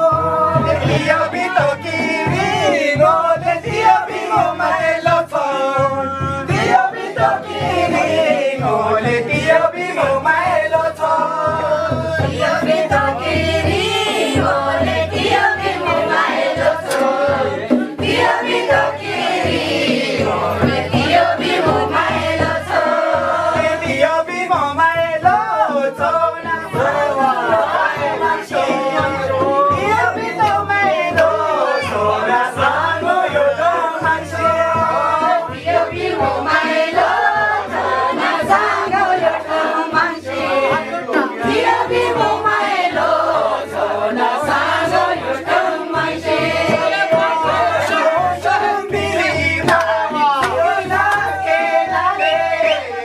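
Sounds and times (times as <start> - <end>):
song with several singing voices: 0.0 - 53.0
steady beat: 0.0 - 53.0.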